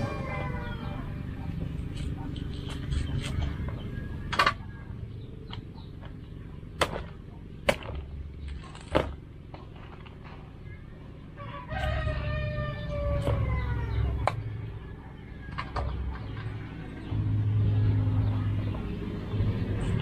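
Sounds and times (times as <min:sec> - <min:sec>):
rooster crowing: 0:00.0 - 0:01.4, 0:11.4 - 0:14.7.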